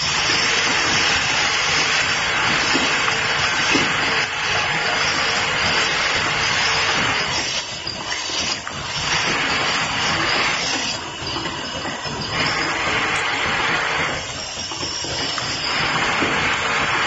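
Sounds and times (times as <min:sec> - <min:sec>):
machine running: 0:00.0 - 0:17.0.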